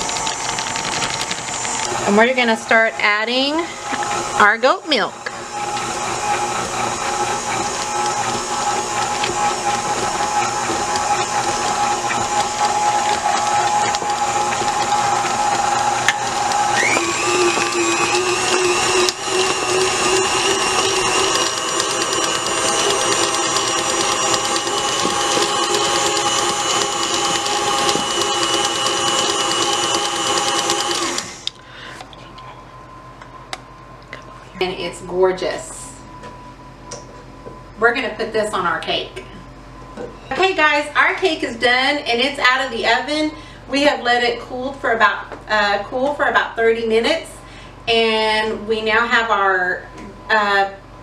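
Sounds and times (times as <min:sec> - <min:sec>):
electric mixer whirring: 0:00.0 - 0:31.6.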